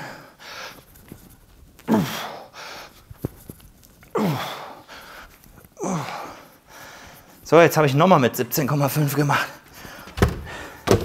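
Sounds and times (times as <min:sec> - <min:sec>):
man groaning exhalations: 0:04.1 - 0:04.8.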